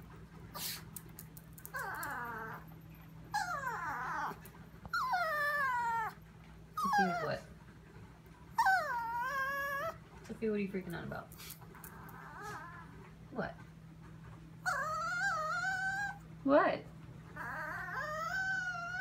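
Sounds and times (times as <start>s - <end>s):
dog whining: 1.6s - 7.5s, 8.5s - 10.2s, 11.4s - 13.2s, 14.6s - 16.4s, 17.2s - 19.0s.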